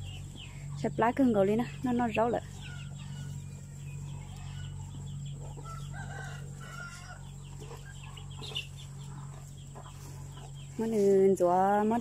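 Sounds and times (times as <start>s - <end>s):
chickens clucking: 0.0s - 12.0s
steady low hum: 0.0s - 12.0s
cow feeding clicks and rustles: 1.7s - 12.0s.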